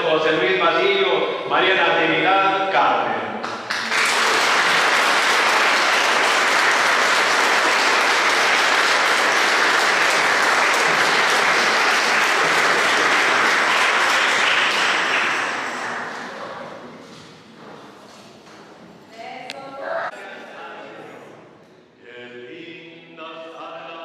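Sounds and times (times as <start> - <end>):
congregation applauding: 3.4 - 16.8.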